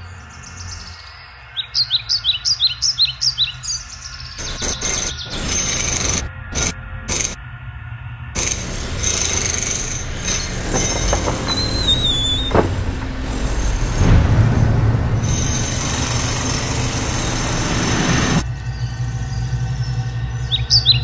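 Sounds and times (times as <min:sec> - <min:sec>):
train rumbling past: 0:08.4 - 0:19.4.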